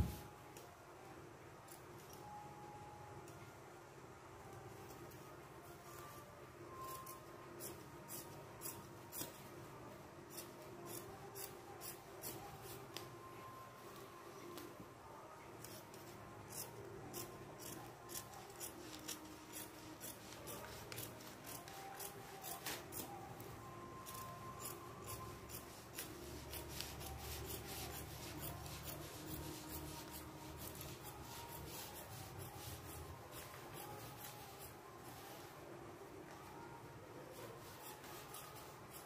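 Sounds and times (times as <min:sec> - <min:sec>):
scissors snipping fabric: 0:06.8 - 0:09.5, 0:15.6 - 0:23.2, 0:24.0 - 0:34.6, 0:37.5 - 0:39.0.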